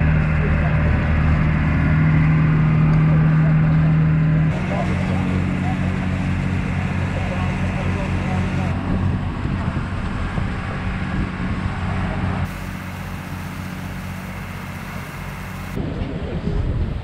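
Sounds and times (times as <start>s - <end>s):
ferry engine drone: 0.0s - 17.0s
wind noise: 8.7s - 12.6s, 15.8s - 17.0s.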